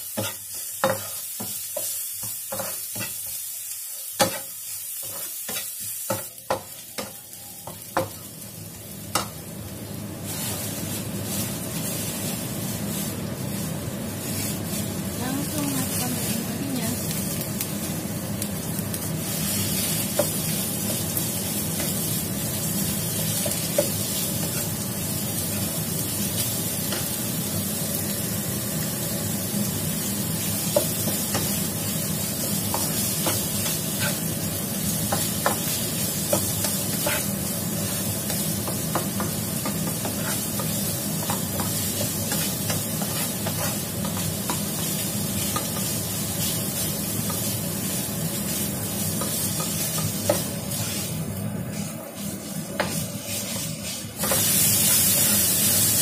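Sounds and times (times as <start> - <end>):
meat sizzling in a pan: 0.0 - 56.0
spatula scraping and tapping pan: 0.2 - 3.4, 4.2 - 8.2, 35.1 - 37.4, 38.3 - 45.9, 49.2 - 51.1, 52.7 - 55.4.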